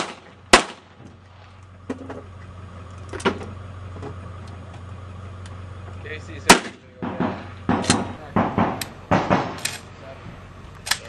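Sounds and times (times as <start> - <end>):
gunshots: 0.0 - 1.0, 6.5 - 9.8
steady low hum: 0.0 - 11.0.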